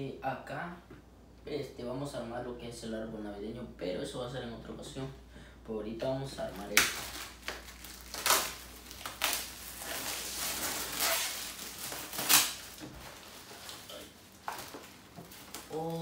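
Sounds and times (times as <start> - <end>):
plastic wrap crinkling and tearing: 6.4 - 16.0.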